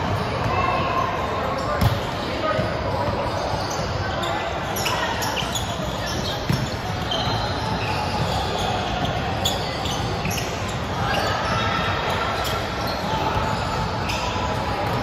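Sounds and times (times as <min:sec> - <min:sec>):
echoing voices in a hall: 0:00.0 - 0:15.0.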